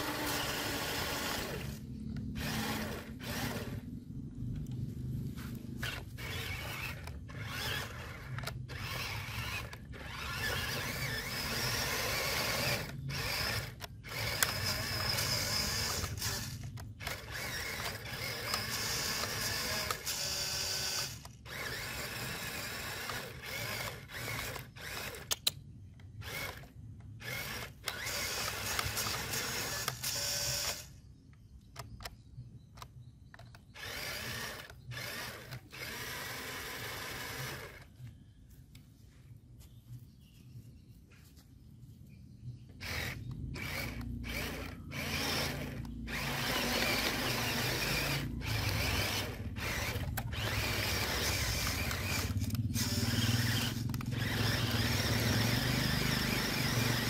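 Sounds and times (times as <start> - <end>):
electric motor whining: 0.0 - 4.0, 4.9 - 25.4, 26.2 - 31.0, 33.8 - 37.9, 42.8 - 57.0.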